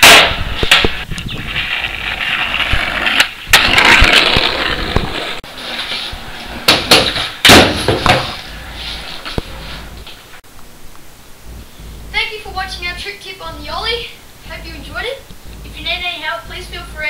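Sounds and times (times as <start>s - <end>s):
skateboard popping and landing: 0.0s - 9.9s
skateboard wheels rolling: 0.0s - 10.4s.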